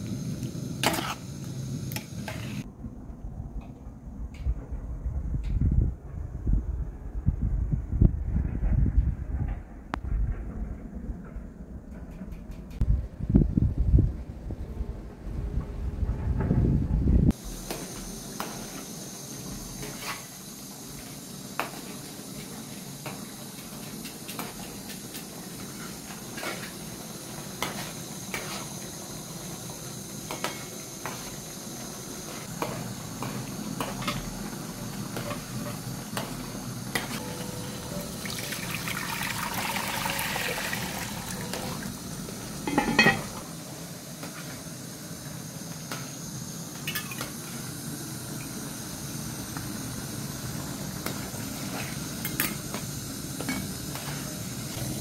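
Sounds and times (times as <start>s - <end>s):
ladle clinking against metal pot: 42.7s - 43.3s.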